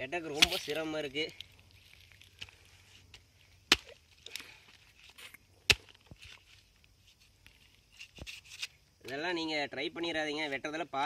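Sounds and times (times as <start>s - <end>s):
machete chopping fruit: 0.3s - 0.8s, 3.6s - 4.4s, 5.6s - 6.2s
small knocks and rustles: 4.2s - 9.2s.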